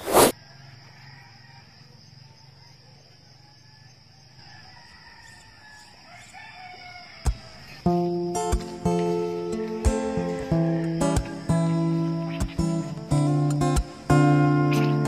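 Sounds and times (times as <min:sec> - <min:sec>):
high insect trill: 0:00.0 - 0:15.0
rooster crowing: 0:00.3 - 0:07.8, 0:10.4 - 0:11.9
strummed acoustic guitar music: 0:07.8 - 0:15.0.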